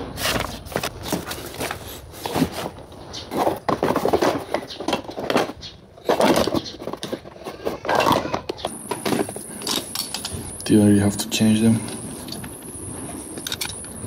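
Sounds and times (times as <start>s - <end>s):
cardboard box rustling: 0.2s - 9.6s.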